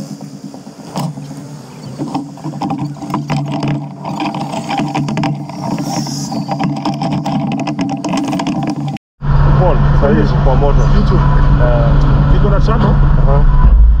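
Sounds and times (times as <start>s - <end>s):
road knocks and rattles: 0.0s - 9.0s
vehicle engine hum: 0.0s - 14.0s.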